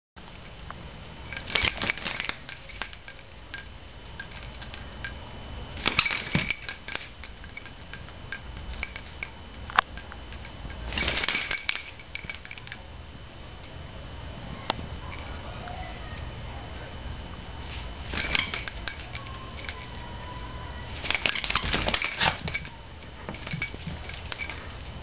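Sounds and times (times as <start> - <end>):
metallic jingling of dog toy: 1.2 - 5.2, 5.8 - 12.9, 15.0 - 15.4, 17.6 - 25.0.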